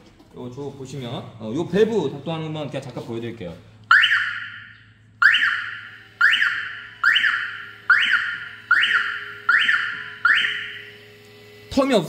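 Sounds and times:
electric actuator operating: 5.2s - 12.0s.

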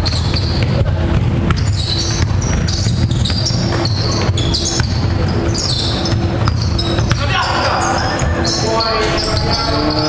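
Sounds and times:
basketball bouncing: 0.0s - 10.0s
sneakers squeaking: 0.0s - 10.0s
sports hall rumble: 0.0s - 10.0s.

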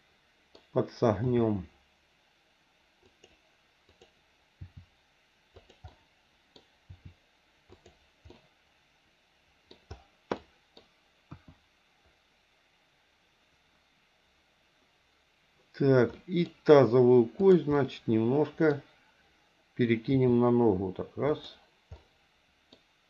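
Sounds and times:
mouse and keyboard clicks: 5.5s - 8.5s.

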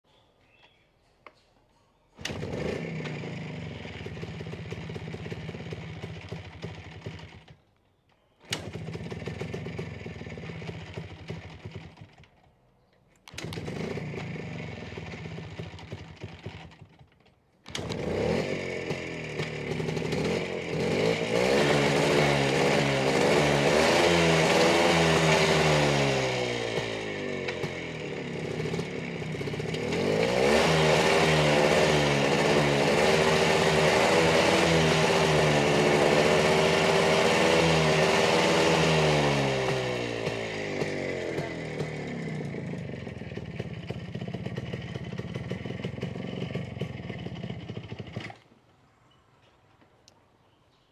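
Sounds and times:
motorcycle engine kickstarting: 2.1s - 48.6s
motorcycle engine revving: 2.2s - 7.6s, 8.4s - 12.3s, 13.2s - 48.4s.

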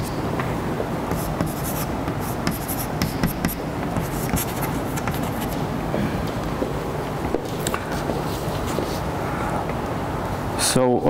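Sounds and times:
chalk scratching on blackboard: 1.1s - 5.6s.

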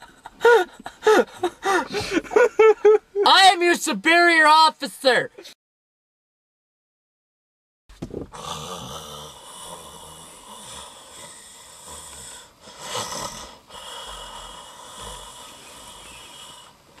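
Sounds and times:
man snoring: 8.3s - 17.0s.

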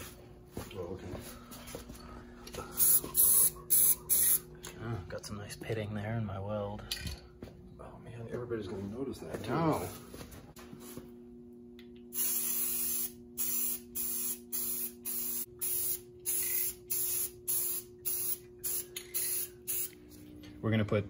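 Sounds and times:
spray can hissing: 2.8s - 4.4s, 12.1s - 20.0s.

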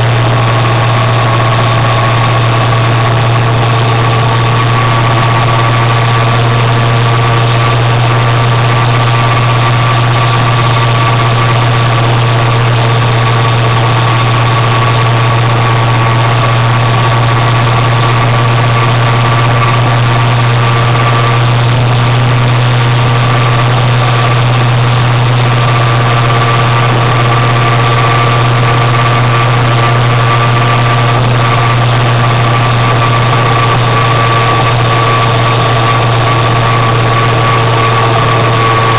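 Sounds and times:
motor scooter engine droning: 0.0s - 38.9s
road noise: 0.0s - 38.9s.

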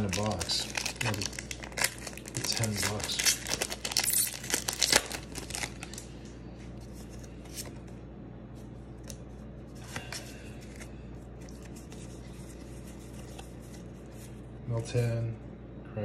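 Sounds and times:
foil wrapper tearing and crinkling: 0.0s - 6.1s.

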